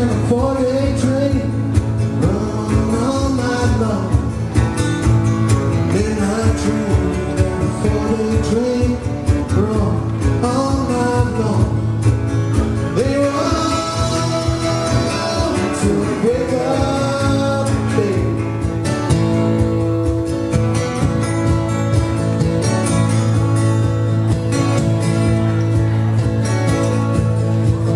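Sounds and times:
man singing: 0.0 - 4.5, 5.8 - 12.0, 12.6 - 18.7
acoustic guitars strummed: 0.0 - 27.9
drum kit beat: 1.0 - 27.9.

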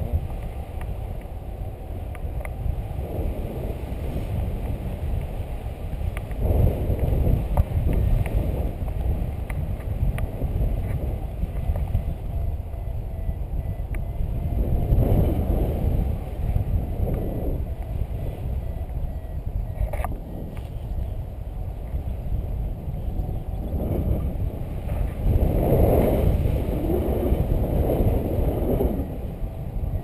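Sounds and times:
wind buffeting microphone: 0.0 - 30.0
faint ticks: 2.0 - 2.6, 6.1 - 12.9, 13.9 - 14.1.

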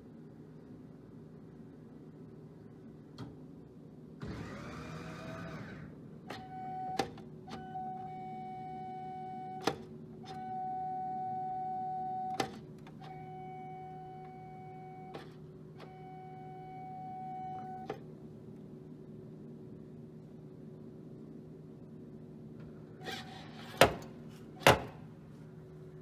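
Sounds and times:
steady low hum: 0.0 - 26.0
vending machine mechanism whining: 4.2 - 18.2, 22.6 - 25.2.

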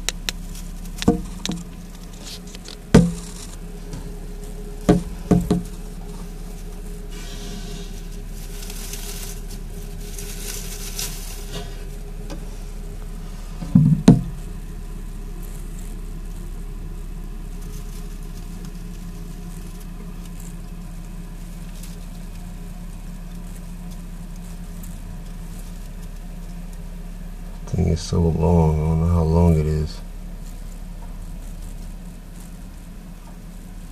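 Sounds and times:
steady low hum: 0.0 - 33.9
shredded paper rustling: 0.4 - 13.6
loud thump: 1.1 - 1.6, 2.9 - 3.6, 4.9 - 5.7, 13.6 - 14.4.

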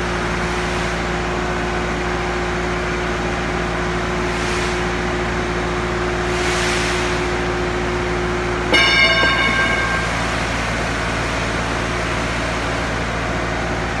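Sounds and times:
steady mechanical hum: 0.0 - 14.0
ringing metallic clang: 8.7 - 11.5
higher hum note: 8.7 - 11.7.

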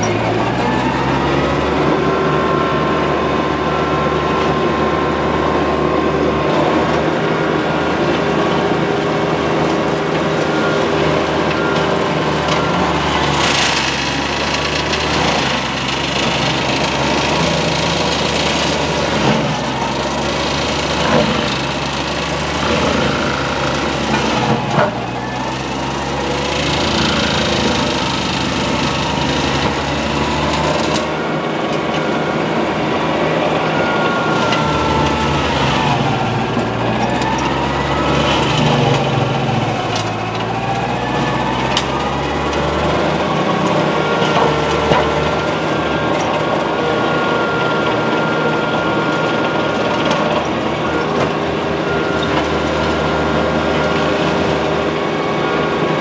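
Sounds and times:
mulcher grinding through brush: 0.0 - 56.0
tractor diesel engine running hard: 0.0 - 56.0
wood cracking: 9.6 - 46.7.

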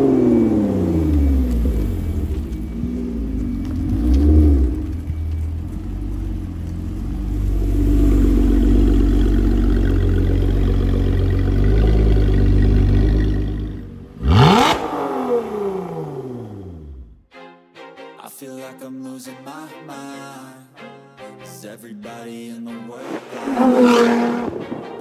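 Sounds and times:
car engine deep rumble: 0.0 - 17.2.

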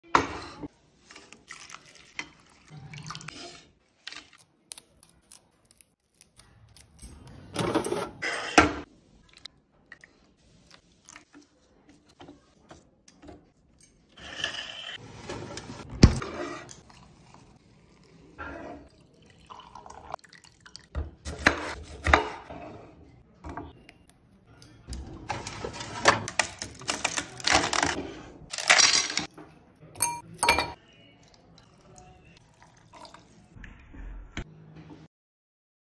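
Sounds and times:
water pouring and dripping: 1.2 - 4.3, 16.7 - 21.0
ice cubes clinking: 28.5 - 29.3
dishes knocking and clinking: 30.0 - 30.8.

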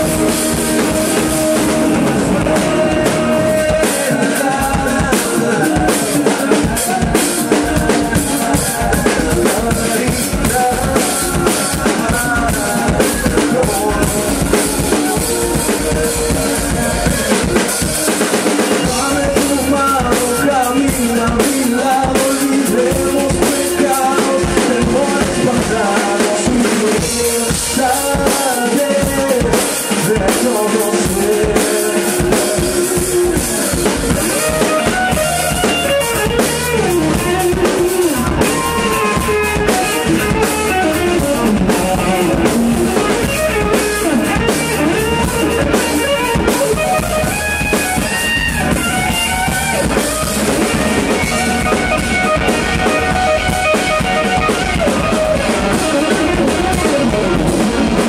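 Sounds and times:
drum kit: 0.0 - 58.0
electric bass: 0.0 - 58.0
electric guitar: 0.0 - 58.0
sliding melody line: 0.0 - 58.0.

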